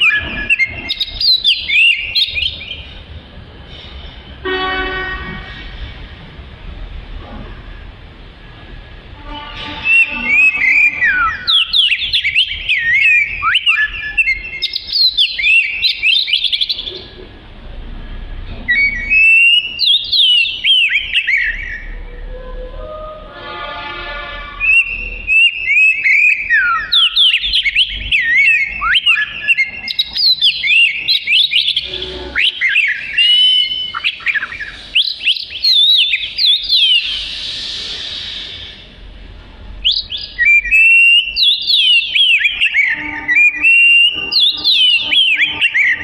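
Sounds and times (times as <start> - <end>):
songbird whistled song: 0.0 - 2.9, 9.8 - 17.1, 18.6 - 22.2, 24.6 - 38.9, 39.8 - 46.0.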